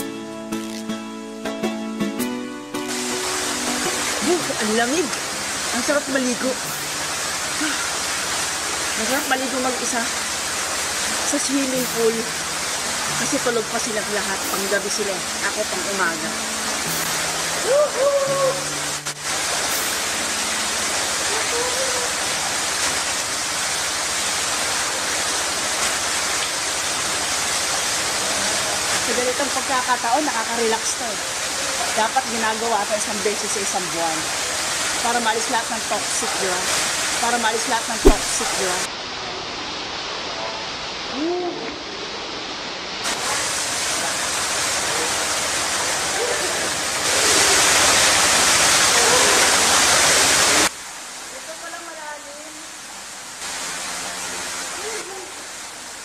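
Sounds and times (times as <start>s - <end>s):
waterfall splashing into pool: 2.8s - 56.0s
water pouring into pool: 38.0s - 38.6s, 43.0s - 50.7s
swimmer splashing: 38.0s - 38.9s.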